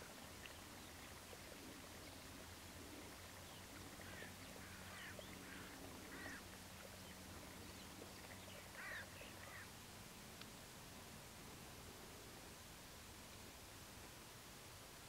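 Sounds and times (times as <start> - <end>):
low steady hum: 0.0 - 15.0
short bird calls: 8.6 - 9.7.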